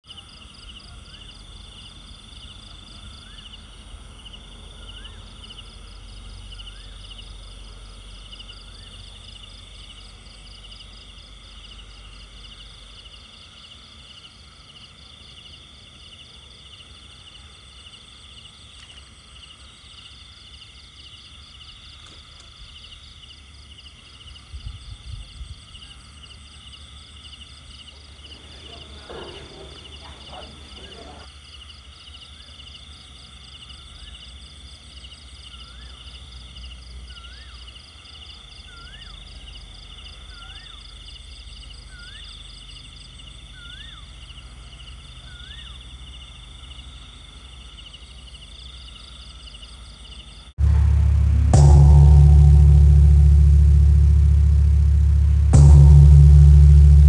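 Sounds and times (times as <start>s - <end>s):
insect chorus: 0.1s - 57.0s
low knocks: 50.6s - 57.0s
low rumble: 50.6s - 57.0s.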